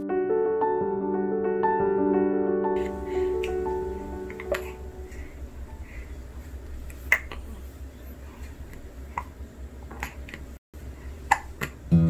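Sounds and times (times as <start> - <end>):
low room hum: 2.8 - 12.0
baby hiccupping: 7.0 - 7.6, 11.3 - 11.9.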